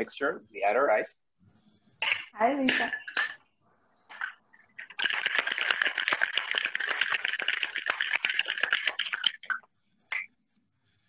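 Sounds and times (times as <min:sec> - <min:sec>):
ice rattling in cocktail shaker: 0:04.1 - 0:09.6.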